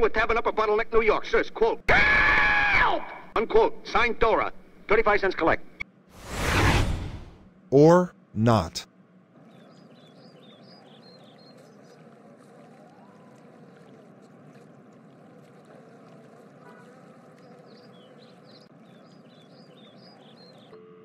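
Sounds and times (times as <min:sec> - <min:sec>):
birds chirping: 0:09.3 - 0:13.9, 0:15.8 - 0:20.8.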